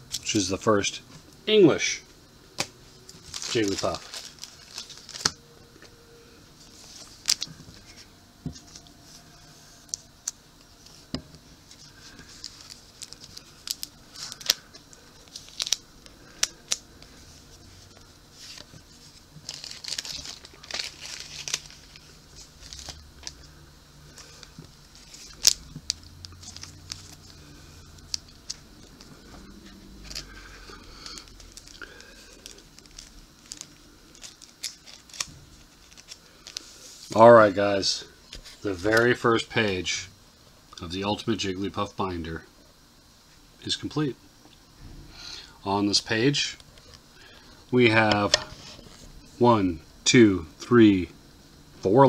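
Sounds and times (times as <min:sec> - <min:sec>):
rustling plastic: 0:03.0 - 0:05.9, 0:11.6 - 0:39.2.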